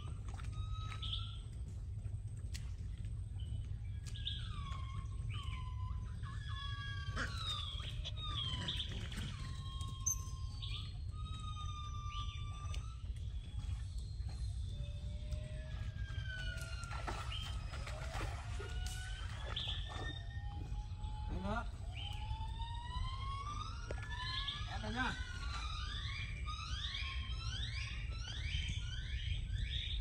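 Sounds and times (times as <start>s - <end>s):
steady low rumble: 0.0s - 30.0s
monkeys giving high coo calls: 4.3s - 13.0s.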